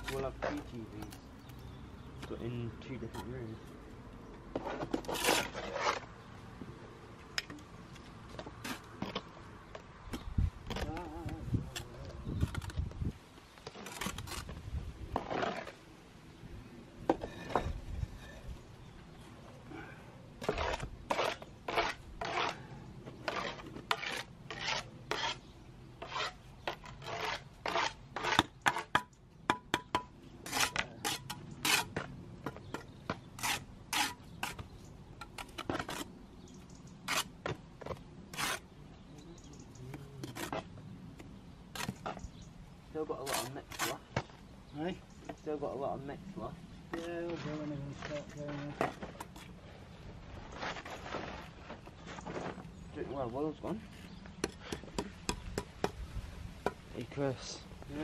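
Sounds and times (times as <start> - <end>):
trowel scraping mortar: 0.0 - 1.2, 4.5 - 6.2, 13.6 - 15.8, 20.4 - 29.1, 29.9 - 36.2, 37.0 - 38.8, 39.9 - 40.8, 41.7 - 42.3, 43.2 - 44.3
trowel tapping bricks: 27.7 - 34.6.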